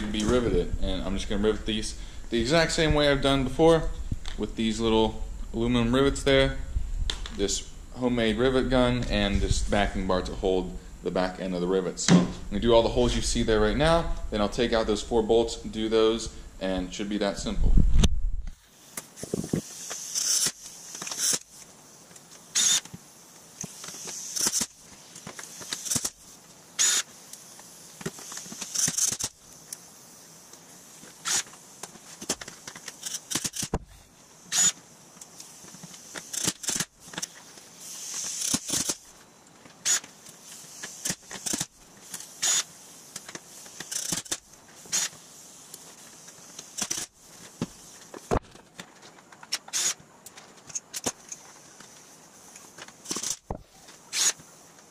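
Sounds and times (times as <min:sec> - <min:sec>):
pneumatic rivet gun hammering: 0:18.9 - 0:21.6, 0:22.4 - 0:23.0, 0:23.6 - 0:29.4, 0:31.1 - 0:39.1, 0:39.8 - 0:45.3, 0:46.6 - 0:48.4, 0:49.5 - 0:50.0, 0:53.0 - 0:54.5
cordless drill running: 0:22.6 - 0:22.8, 0:26.8 - 0:27.1, 0:34.5 - 0:34.8, 0:42.4 - 0:42.7, 0:49.7 - 0:50.0.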